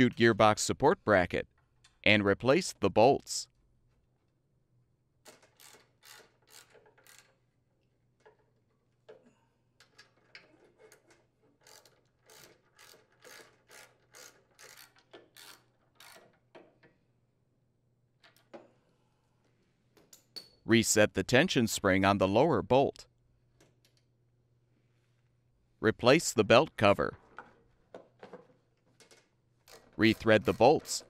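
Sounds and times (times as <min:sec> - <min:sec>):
socket ratchet clicking: 0:11.6 - 0:16.3.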